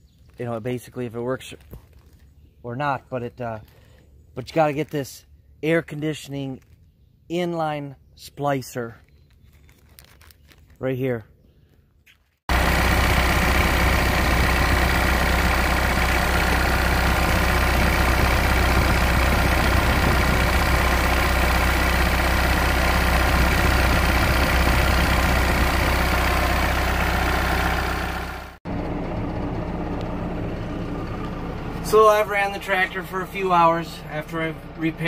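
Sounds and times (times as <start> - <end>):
tractor diesel engine running: 12.5 - 35.0.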